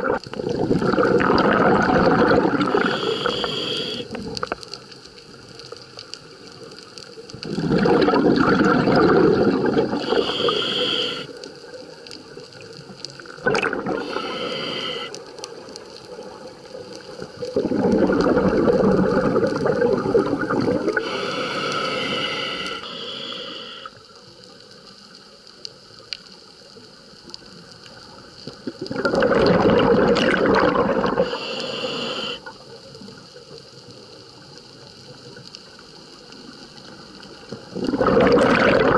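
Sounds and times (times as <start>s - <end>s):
bubbling regulator exhalations: 0.0s - 4.4s, 7.4s - 11.3s, 13.4s - 15.1s, 17.4s - 23.9s, 28.7s - 32.5s, 37.7s - 38.9s
regulator inhalation hiss: 2.6s - 4.2s, 9.9s - 11.4s, 13.8s - 15.4s, 20.9s - 24.2s, 31.0s - 32.6s.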